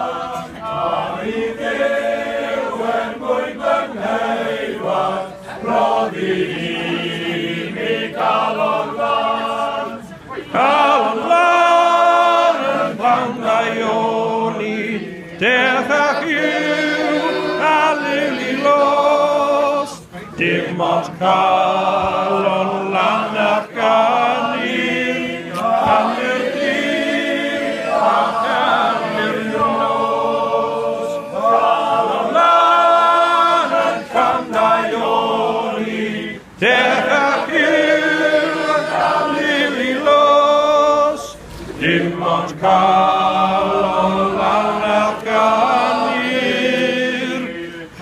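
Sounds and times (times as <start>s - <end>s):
men's choir singing: 0.0s - 48.0s.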